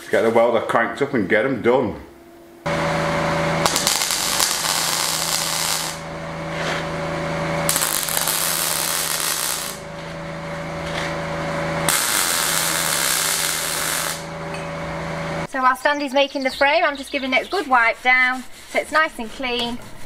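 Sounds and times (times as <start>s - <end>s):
steady hum: 0.0s - 20.0s
crackling hiss of welding arc: 3.6s - 6.1s, 7.7s - 9.8s, 11.9s - 14.3s.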